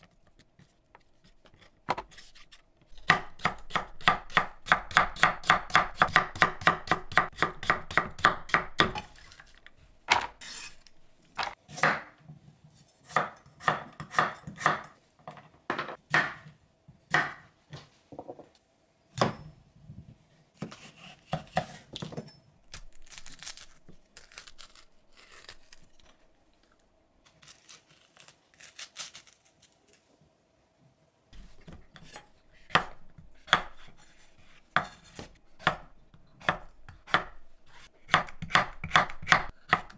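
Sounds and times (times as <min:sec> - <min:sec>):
knife chopping on wooden board: 0:38.1 - 0:39.9.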